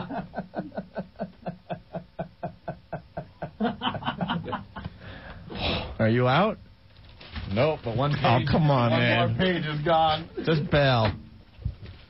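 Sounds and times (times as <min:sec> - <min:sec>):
man laughing in pulses: 0:00.0 - 0:05.0.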